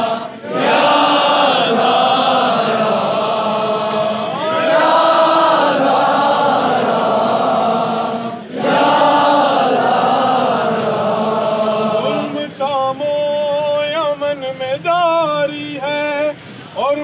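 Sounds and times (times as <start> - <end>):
crowd of men chanting: 0.0 - 12.9.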